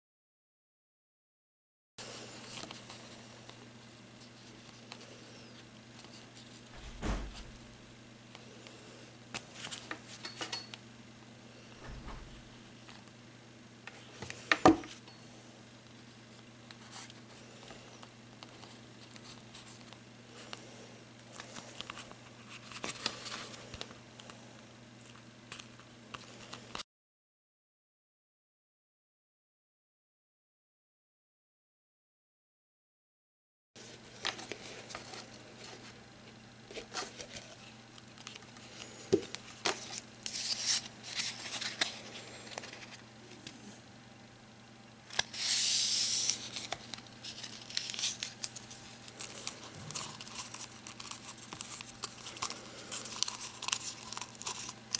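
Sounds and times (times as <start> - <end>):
low steady hum: 2.0 - 26.8
paper and card rustling: 4.2 - 8.0, 21.3 - 23.8, 33.8 - 36.0, 36.7 - 38.6, 39.3 - 43.6, 45.1 - 54.9
ribbon rustling and crinkling: 45.2 - 54.9.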